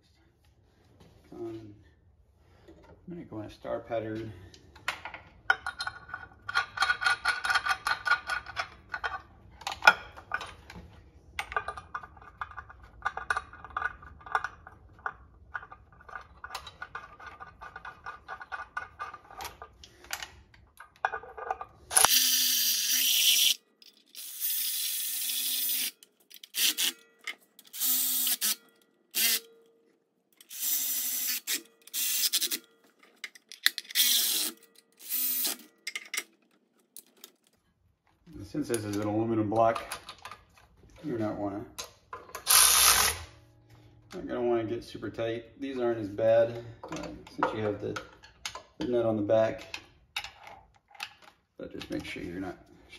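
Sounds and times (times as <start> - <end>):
electric ratchet clicking: 21.9 - 27.0, 27.6 - 28.6, 29.2 - 29.5, 30.4 - 32.6, 33.9 - 35.6, 42.4 - 43.3
ratchet motor whirring: 21.9 - 27.0, 27.6 - 28.6, 29.2 - 29.5, 30.4 - 32.7, 33.9 - 35.6, 42.4 - 43.3.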